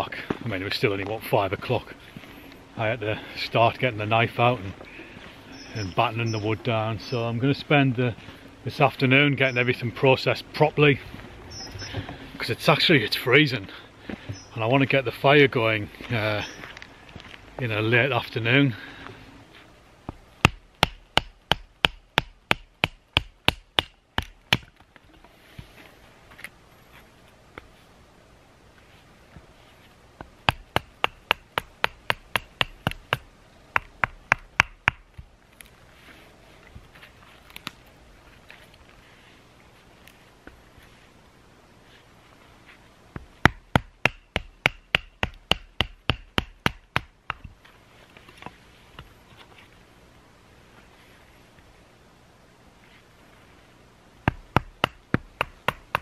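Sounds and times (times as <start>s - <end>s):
wood splitting strikes: 20.1s - 24.8s, 30.4s - 35.3s, 43.2s - 47.6s, 54.2s - 56.0s.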